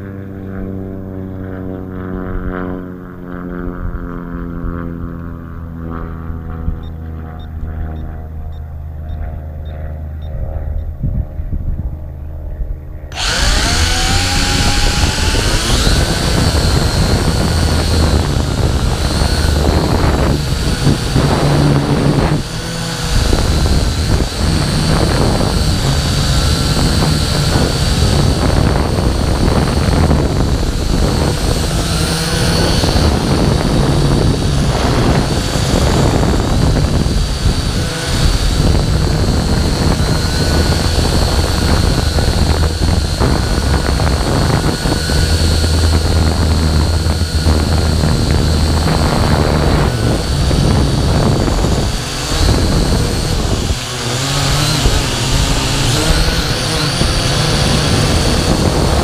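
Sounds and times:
drone propellers whining: 0:12.9 - 0:59.0.

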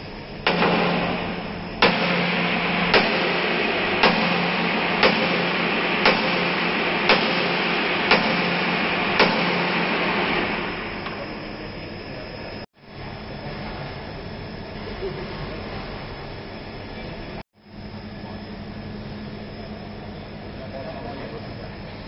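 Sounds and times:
loud steady rushing noise: 0:00.0 - 0:12.6
low hum: 0:00.0 - 0:15.2
sledgehammer striking steel: 0:00.5 - 0:11.1.

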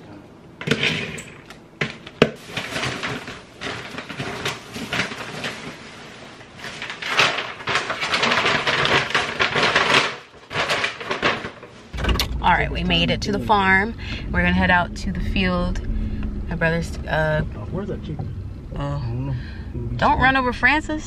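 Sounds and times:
items knocking and clicking: 0:00.6 - 0:05.8, 0:06.6 - 0:12.4
paper bag crinkling: 0:02.0 - 0:12.0.

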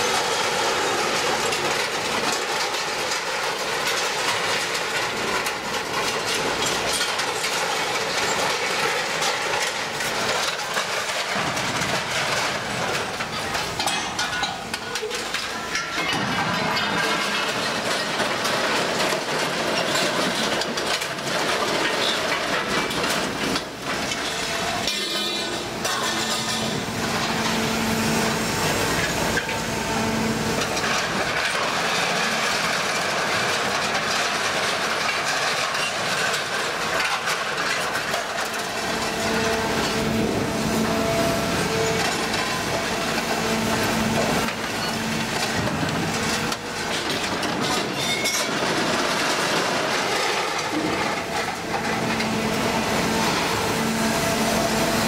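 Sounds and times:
scrap metal clanking and scraping: 0:00.1 - 0:55.0
crane mechanical drone: 0:38.6 - 0:48.9, 0:49.5 - 0:55.0.

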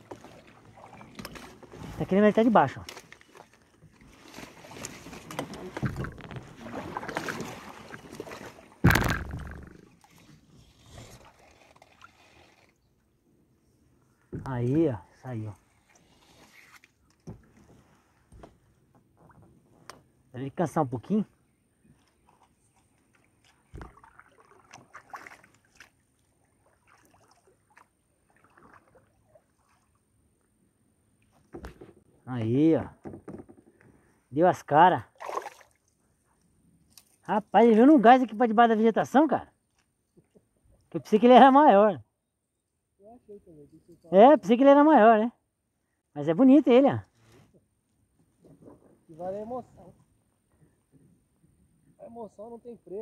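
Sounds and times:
rustling vegetation: 0:00.0 - 0:12.8
water splashing: 0:00.0 - 0:12.8, 0:23.1 - 0:30.0, 0:35.1 - 0:35.9
sudden loud noise: 0:08.8 - 0:09.8.

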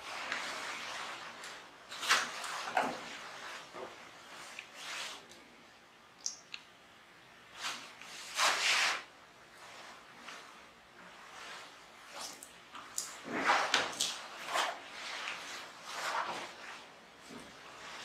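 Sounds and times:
satin dress rustling: 0:07.5 - 0:18.0.

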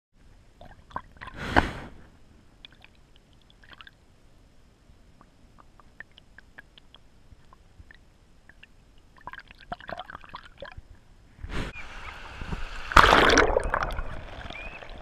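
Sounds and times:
small splashes and bubbles: 0:00.6 - 0:01.4, 0:02.6 - 0:04.0, 0:05.6 - 0:10.8, 0:12.8 - 0:15.0
water dripping: 0:02.6 - 0:04.0, 0:05.2 - 0:10.8
loud water splash: 0:12.5 - 0:15.0.

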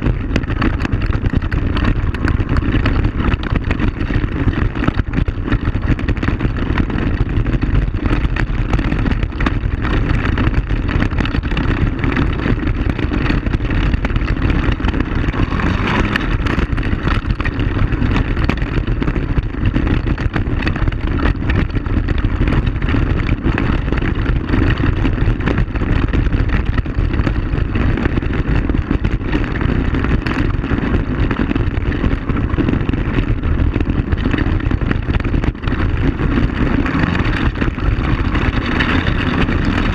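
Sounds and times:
knocks and rattles: 0:00.0 - 0:39.9
quad bike engine running: 0:00.0 - 0:39.9.

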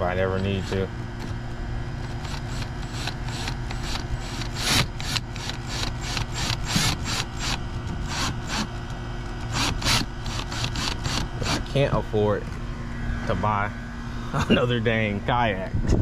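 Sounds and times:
rhythmic rasping on plastic: 0:02.0 - 0:08.8, 0:09.5 - 0:11.7.

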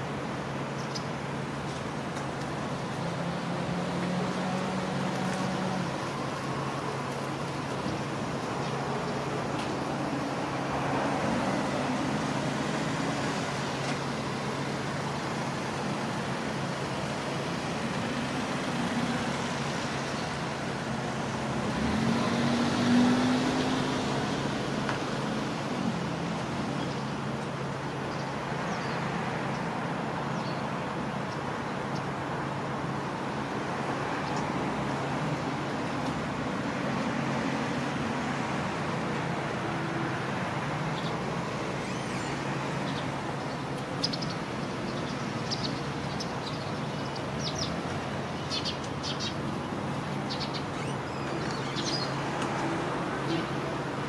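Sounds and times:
road traffic rumble: 0:00.0 - 0:54.0
vehicle passing: 0:21.6 - 0:24.8.

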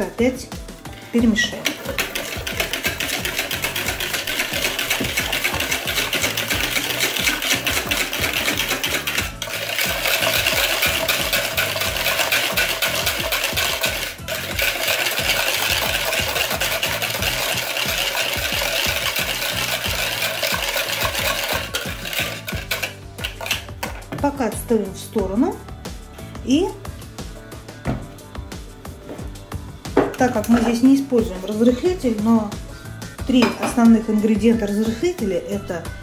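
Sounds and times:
wire whisk beating batter in bowl: 0:00.9 - 0:24.5.

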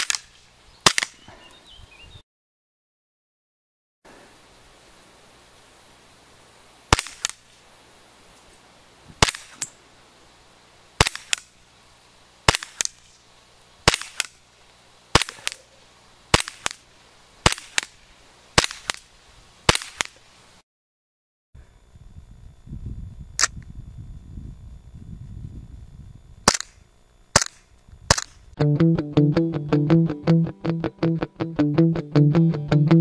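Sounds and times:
airsoft pistol shots popping: 0:00.0 - 0:01.3, 0:06.9 - 0:07.4, 0:09.2 - 0:09.8, 0:11.0 - 0:11.5, 0:12.5 - 0:13.0, 0:13.9 - 0:14.4, 0:15.2 - 0:15.6, 0:16.3 - 0:16.8, 0:17.4 - 0:18.0, 0:18.6 - 0:19.0, 0:19.7 - 0:20.2, 0:26.4 - 0:28.4.

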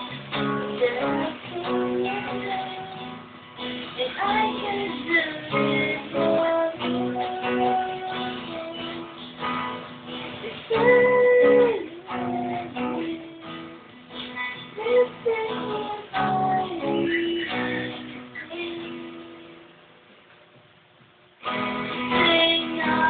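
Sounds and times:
strummed acoustic guitar: 0:00.0 - 0:19.7, 0:21.4 - 0:23.0
woman singing: 0:00.3 - 0:09.3, 0:10.3 - 0:19.7, 0:22.0 - 0:23.0.

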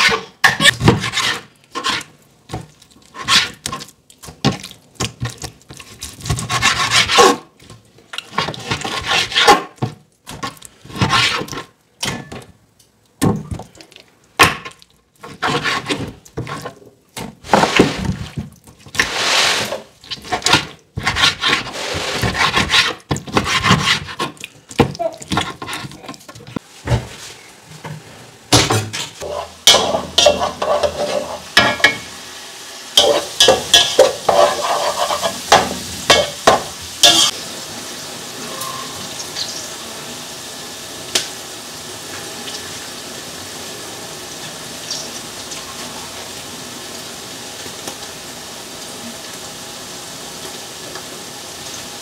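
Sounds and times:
knife sawing through meat: 0:06.4 - 0:07.4, 0:08.8 - 0:09.6.

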